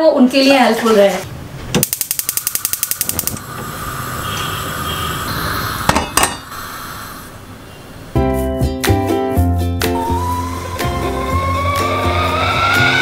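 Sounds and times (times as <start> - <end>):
sharp clicks: 1.8 - 3.4
gas flame hissing: 1.8 - 8.2
music: 8.2 - 13.0.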